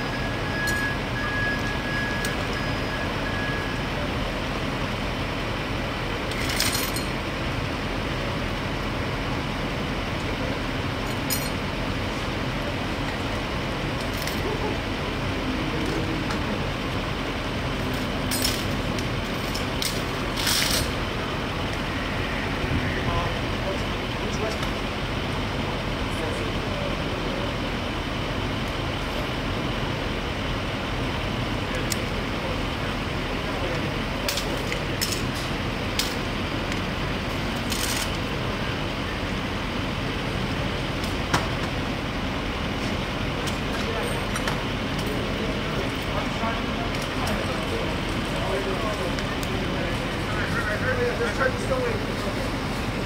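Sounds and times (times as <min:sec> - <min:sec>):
street background noise: 0:00.0 - 0:53.0.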